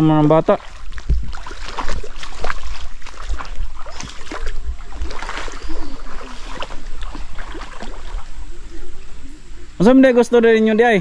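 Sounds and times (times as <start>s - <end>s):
footsteps splashing in water: 0.2s - 8.4s.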